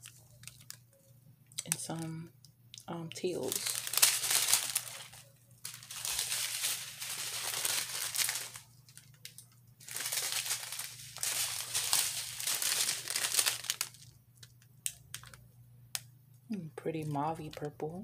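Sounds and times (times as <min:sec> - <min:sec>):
plastic bags crinkling: 0:00.0 - 0:00.8, 0:03.1 - 0:15.4.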